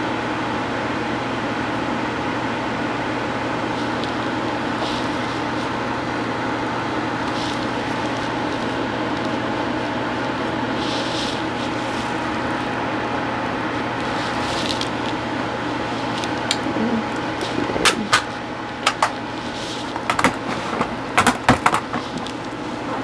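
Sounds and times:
steady hum and hiss: 0:00.0 - 0:23.0.

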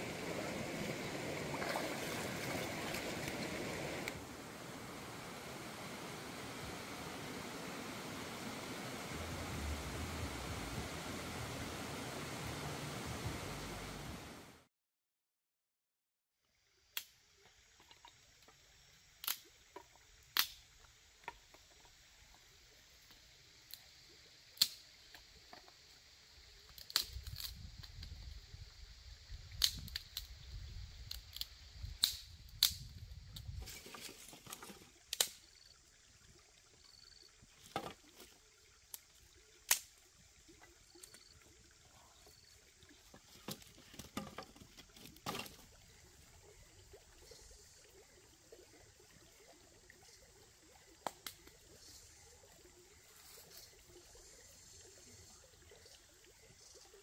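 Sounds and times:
high background hiss: 0:00.0 - 0:14.6, 0:16.5 - 0:57.0
sticks snapping: 0:19.2 - 0:19.5, 0:20.4 - 0:20.6, 0:24.6 - 0:24.8, 0:26.8 - 0:27.6, 0:29.6 - 0:30.3, 0:31.1 - 0:32.9, 0:35.1 - 0:35.4, 0:39.7 - 0:39.9.

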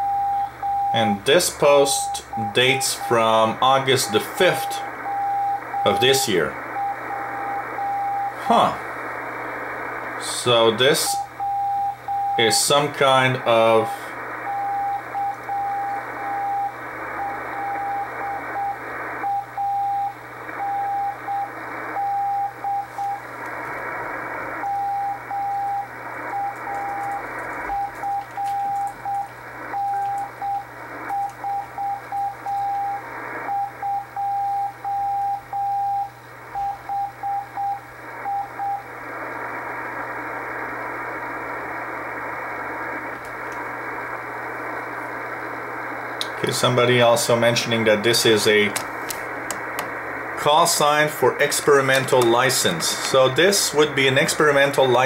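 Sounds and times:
morse code tone: 0:00.0 - 0:01.2, 0:01.8 - 0:08.4, 0:11.1 - 0:12.7, 0:13.5 - 0:23.3, 0:24.6 - 0:38.9
low hum: 0:00.0 - 0:55.0
radio static hiss: 0:00.0 - 0:55.0.

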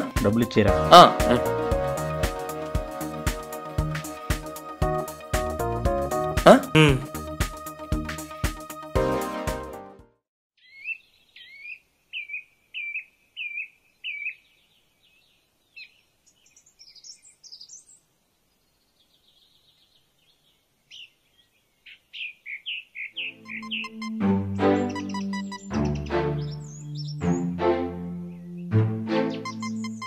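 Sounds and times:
birds chirping and warbling: 0:10.6 - 0:30.0.

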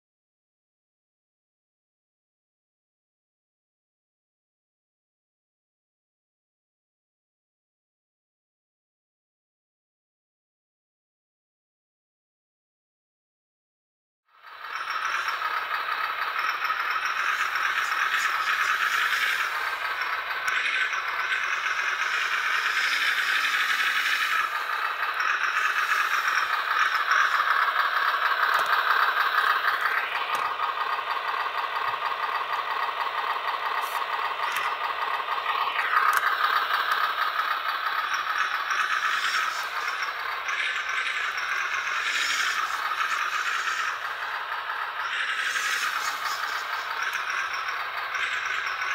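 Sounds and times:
simulated truck engine from speaker: 0:14.3 - 0:48.9.

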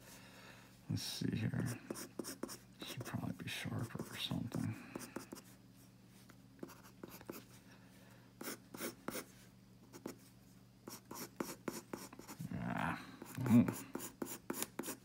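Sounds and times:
pencil scratching on paper: 0:01.6 - 0:03.2, 0:04.9 - 0:05.5, 0:06.6 - 0:07.5, 0:08.4 - 0:09.3, 0:09.9 - 0:10.2, 0:10.9 - 0:12.4, 0:13.2 - 0:15.0.

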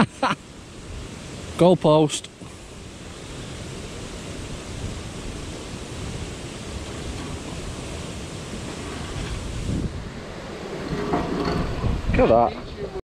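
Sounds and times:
wind buffeting microphone: 0:02.6 - 0:13.0.

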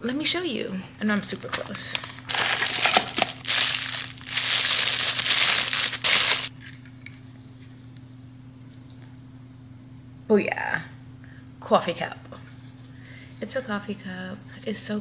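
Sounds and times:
plastic wrapping crinkling: 0:01.3 - 0:06.8.

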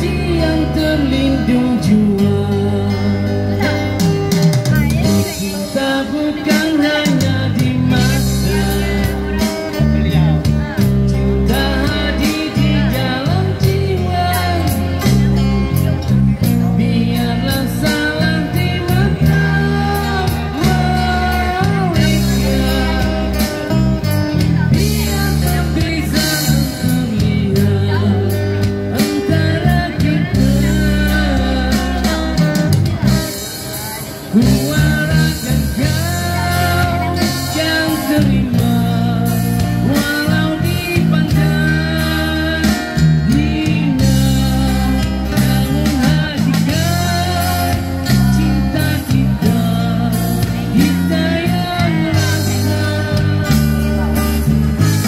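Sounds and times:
live band playing: 0:00.0 - 0:55.0
man singing into a microphone: 0:00.0 - 0:55.0.

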